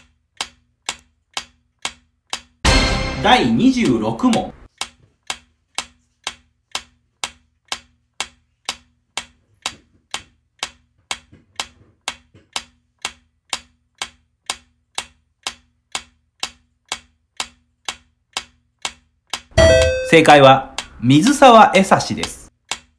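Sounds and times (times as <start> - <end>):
clock-like timer ticks: 0.0 - 22.9.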